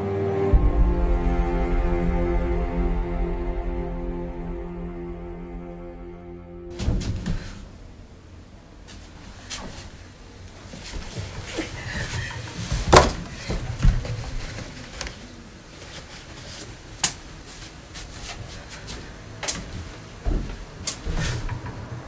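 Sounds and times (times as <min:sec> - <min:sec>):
knocks and thumps: 0:06.7 - 0:07.6, 0:11.2 - 0:14.5.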